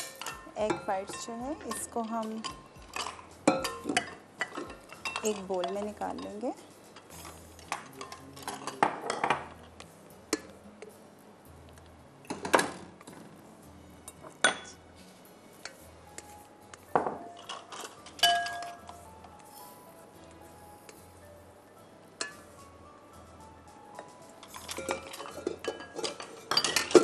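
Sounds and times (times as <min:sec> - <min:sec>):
kitchenware clinking and knocking: 0:00.0 - 0:09.6, 0:12.3 - 0:13.3, 0:14.2 - 0:14.8, 0:16.9 - 0:19.0, 0:24.4 - 0:27.0
glassy ring: 0:18.1 - 0:18.9.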